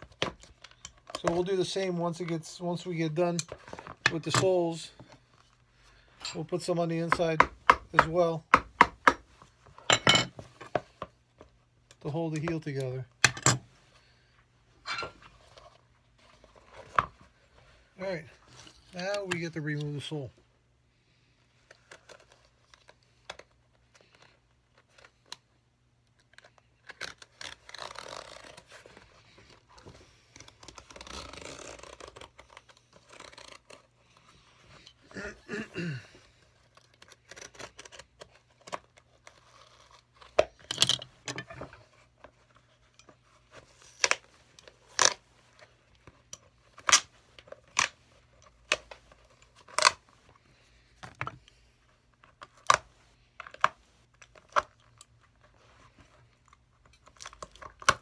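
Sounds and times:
glued sole ripping: 0:26.8 - 0:28.8, 0:30.3 - 0:33.9.

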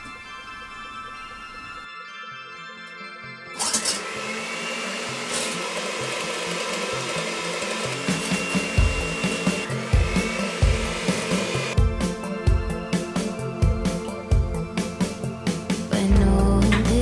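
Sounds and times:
electric hand mixer whipping cream: 0:03.6 - 0:12.0
background music with bass beat: 0:08.9 - 0:17.0.

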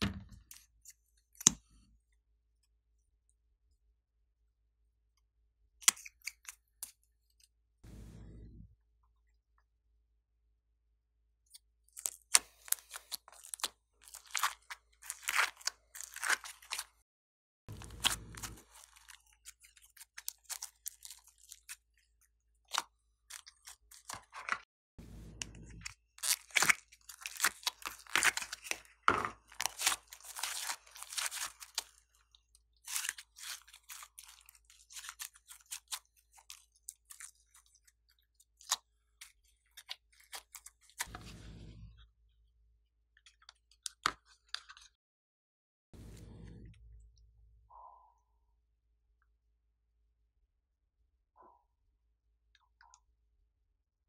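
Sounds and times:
slime crackling and crunching: 0:11.9 - 0:17.0, 0:17.7 - 0:22.1, 0:26.1 - 0:41.1.

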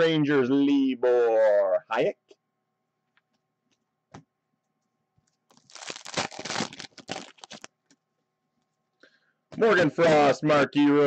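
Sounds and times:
foil wrapper crinkling: 0:05.5 - 0:08.0.

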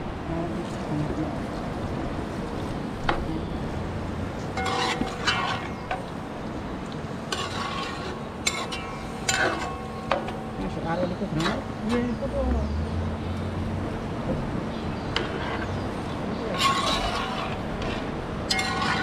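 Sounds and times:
low background noise: 0:00.0 - 0:19.0
metal spoon scraping and clinking pot: 0:04.5 - 0:06.0, 0:07.3 - 0:10.7, 0:11.3 - 0:12.2, 0:16.5 - 0:19.0.

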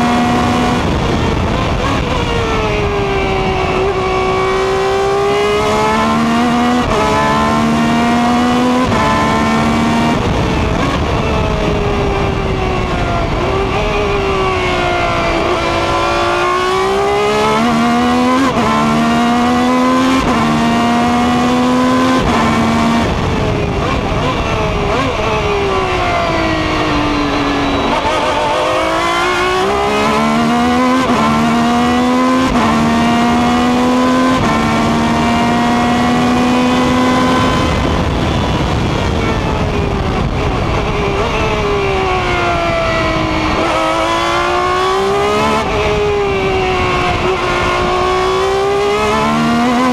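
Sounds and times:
race car engine shifting gears: 0:14.5 - 0:38.0, 0:43.5 - 0:49.9.

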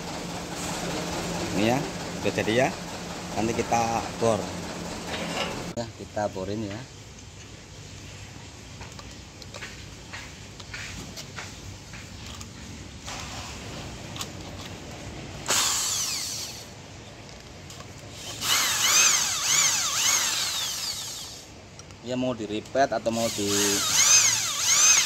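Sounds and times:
electric drill boring through steel: 0:15.5 - 0:16.7, 0:18.2 - 0:21.5, 0:23.2 - 0:25.0.

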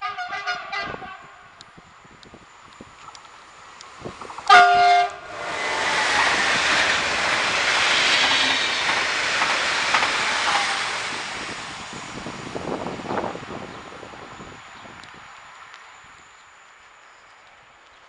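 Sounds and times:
train horn chord: 0:00.0 - 0:01.5, 0:04.5 - 0:06.3
train passing at speed: 0:00.0 - 0:17.8.

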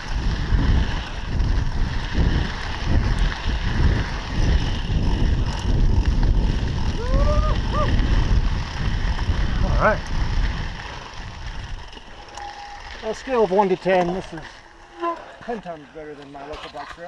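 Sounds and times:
wind buffeting microphone: 0:00.0 - 0:13.6
bike tyres rattling over dirt: 0:00.0 - 0:17.0
short rising squeaks: 0:12.2 - 0:13.1.

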